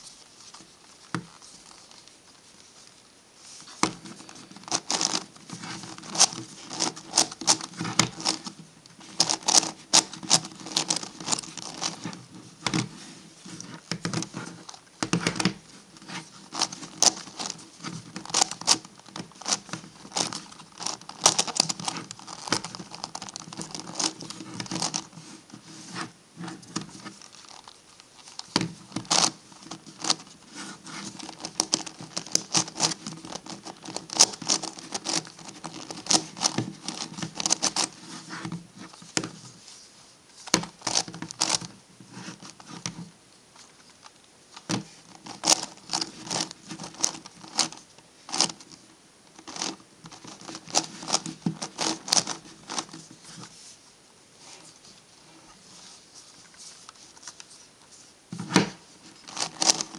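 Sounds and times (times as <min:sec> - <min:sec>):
plastic puzzle clicking: 0:16.5 - 0:25.1, 0:44.6 - 0:48.7, 0:49.4 - 0:53.0, 0:59.3 - 0:59.9.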